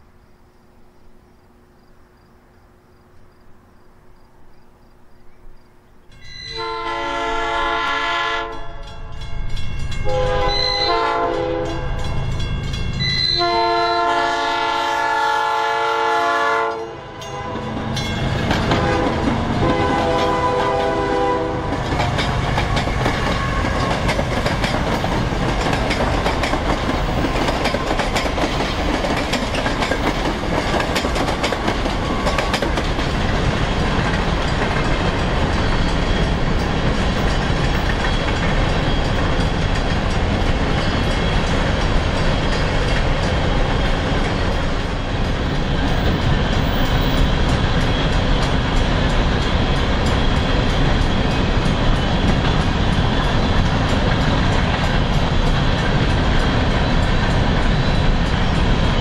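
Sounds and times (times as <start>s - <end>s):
train rumble and wheel clatter: 0.0s - 59.0s
train horn blasts: 6.2s - 9.0s, 10.0s - 12.4s, 13.0s - 24.0s.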